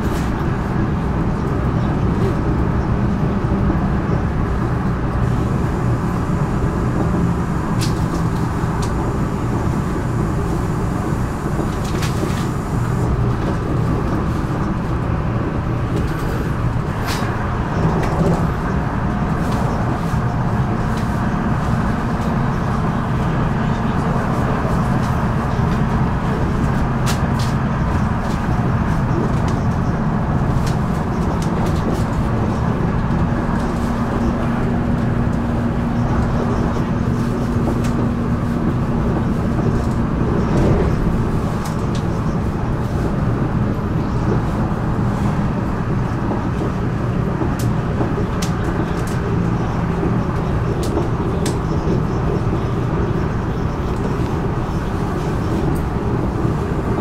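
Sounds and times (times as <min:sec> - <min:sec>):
train engines and wheels rumbling: 0:00.0 - 0:57.0.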